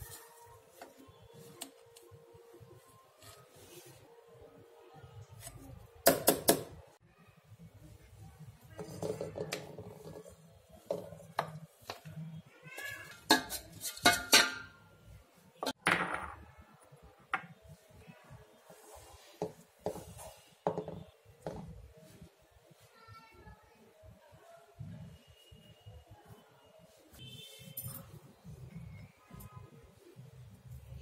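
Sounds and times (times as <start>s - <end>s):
spoon scraping metal jar: 13.0s - 14.7s
metal jar knocking and clanking: 13.2s - 14.8s.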